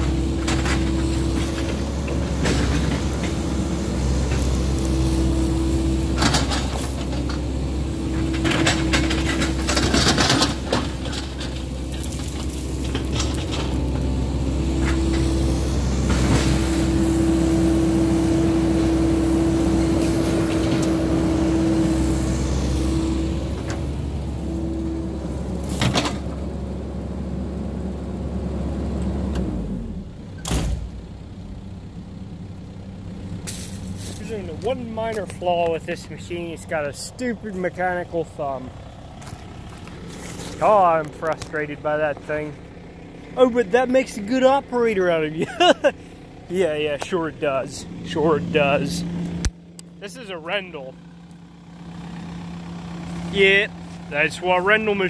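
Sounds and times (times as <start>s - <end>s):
hydraulic whine: 0.0s - 26.7s
diesel engine running: 0.0s - 55.0s.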